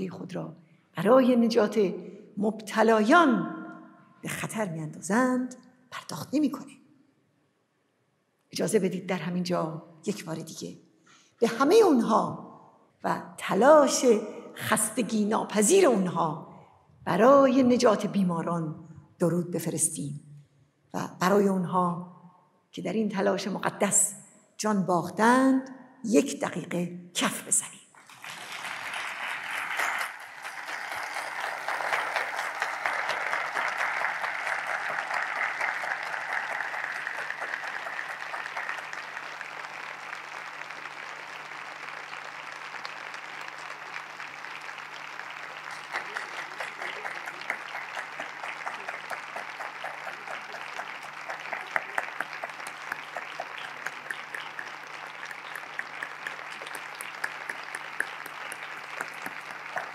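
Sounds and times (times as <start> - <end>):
crowd clapping rhythmically: 28.0 - 59.9.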